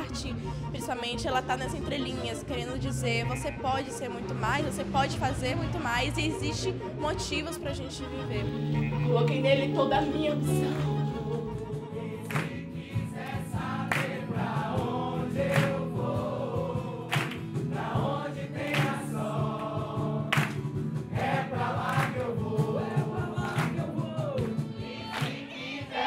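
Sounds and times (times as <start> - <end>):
group singing over music: 8.8 - 26.0.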